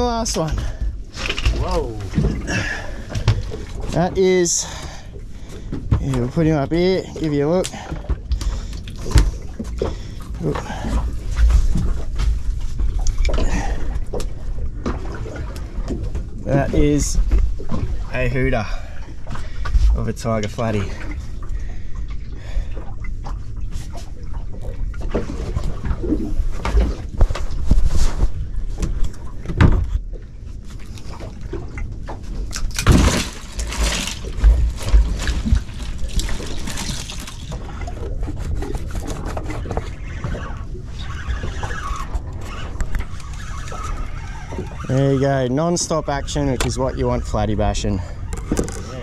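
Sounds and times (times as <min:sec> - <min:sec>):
water slapping against boat hull: 0:00.0 - 0:49.0
knocks and rustles: 0:32.0 - 0:37.7.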